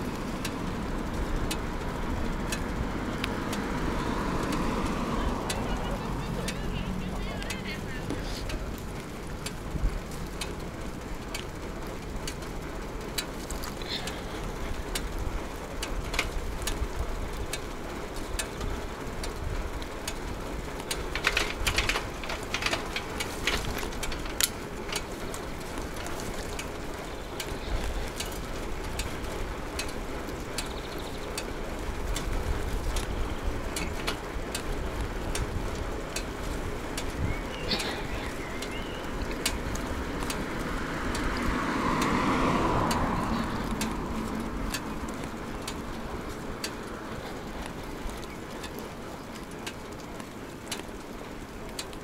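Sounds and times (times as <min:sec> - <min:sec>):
bicycle tyres rumbling: 0:00.0 - 0:52.0
bike clicks and rattles: 0:00.0 - 0:52.0
wind: 0:00.0 - 0:52.0.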